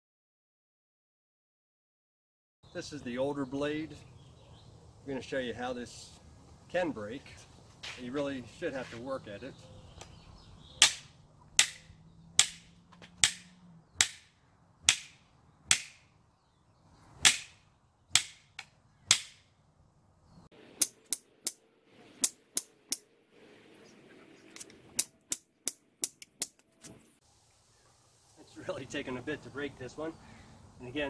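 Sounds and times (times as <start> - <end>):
plastic blade slammed on concrete: 10.8 - 14.3, 14.9 - 16.1, 17.2 - 17.6, 18.2 - 19.5.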